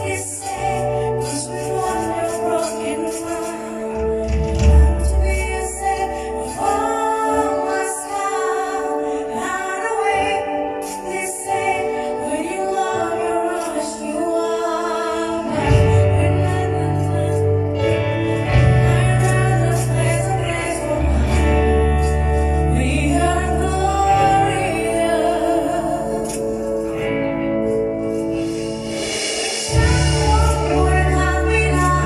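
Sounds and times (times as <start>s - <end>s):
woman singing: 0.0s - 27.3s, 29.7s - 32.0s
live band playing: 0.0s - 32.0s.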